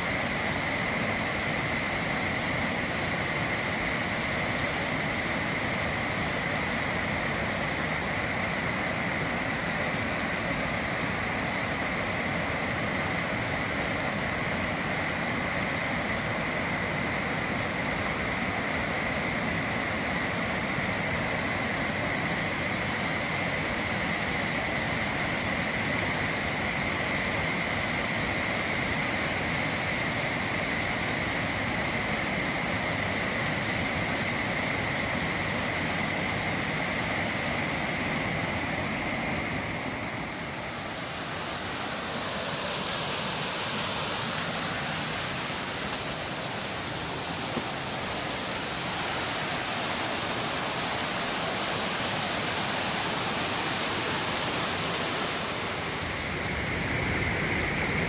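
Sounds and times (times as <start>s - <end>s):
waterfall rushing: 25.9s - 58.0s.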